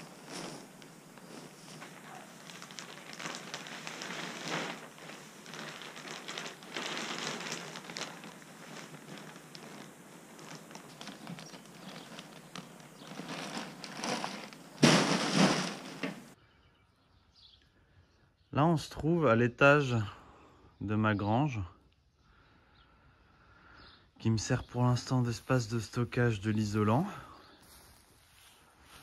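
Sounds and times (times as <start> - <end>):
plastic packaging crinkling: 0.0 - 16.4
loud thump: 14.8 - 16.2.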